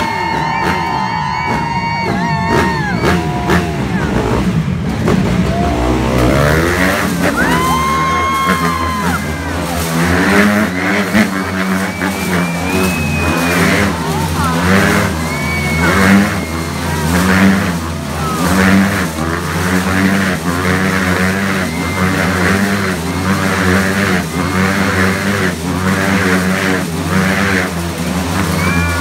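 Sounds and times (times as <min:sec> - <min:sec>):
motorcycles revving: 0:00.0 - 0:29.0.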